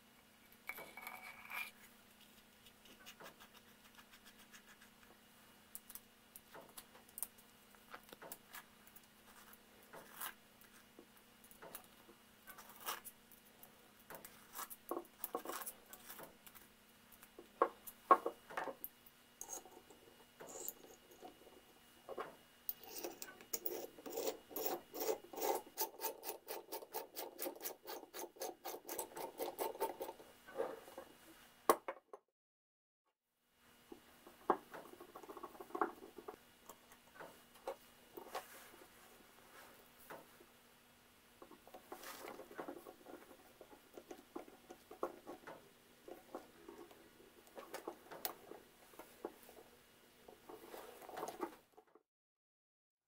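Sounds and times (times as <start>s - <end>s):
steel parts clicking and scraping: 19.4s - 21.5s, 22.7s - 30.2s.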